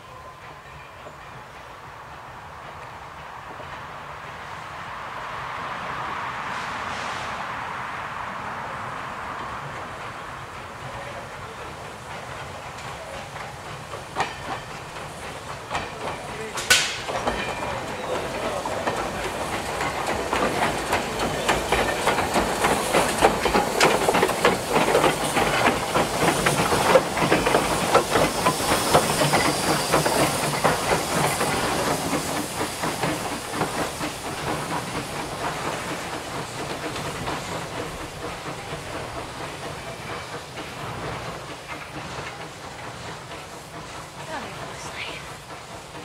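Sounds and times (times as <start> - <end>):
steam hiss: 0.1 - 46.0
steam locomotive exhaust beats: 8.9 - 46.0
wheels clicking over rail joints: 9.4 - 46.0.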